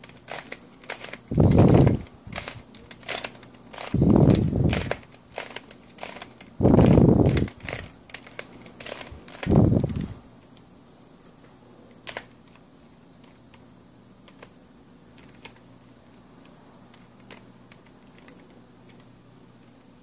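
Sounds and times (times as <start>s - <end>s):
plastic puzzle clicking: 0.0s - 10.0s, 11.9s - 12.6s, 14.2s - 14.5s, 15.2s - 15.6s, 16.4s - 19.1s.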